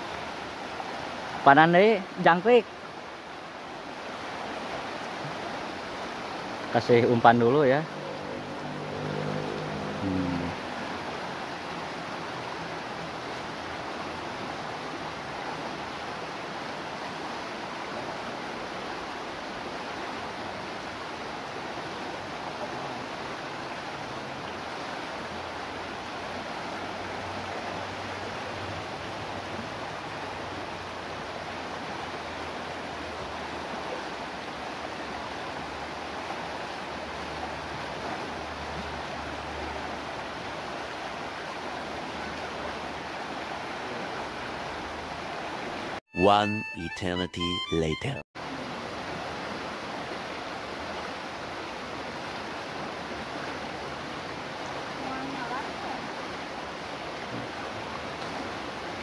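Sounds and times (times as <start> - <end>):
river rushing over rocks: 0.0 - 46.0, 48.4 - 59.0.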